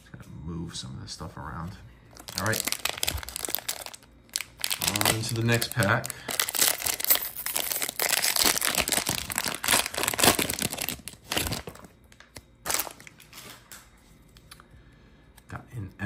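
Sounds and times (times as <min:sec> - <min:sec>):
wrapper tearing and crinkling: 0:02.2 - 0:13.6.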